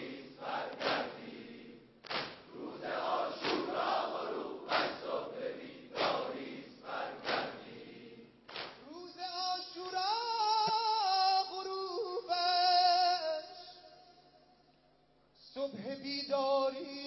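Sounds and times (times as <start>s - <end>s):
crowd noise: 0.0s - 1.2s
crowd beating chests in unison: 0.0s - 8.8s.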